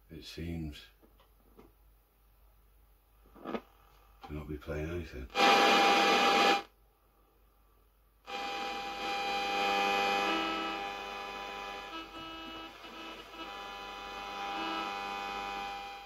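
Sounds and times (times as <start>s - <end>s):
music with sustained chords: 8.3s - 16.0s.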